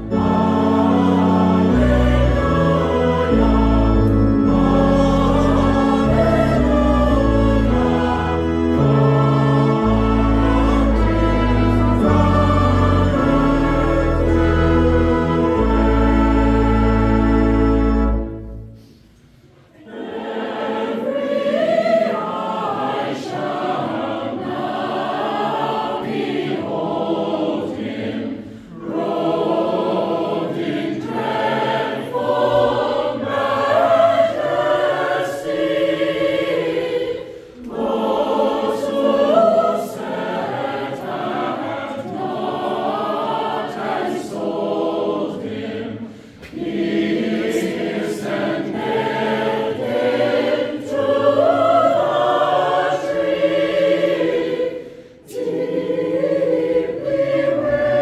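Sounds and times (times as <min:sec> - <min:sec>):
held brass chord: 0:00.0 - 0:18.9
church choir singing a hymn: 0:00.0 - 0:58.0.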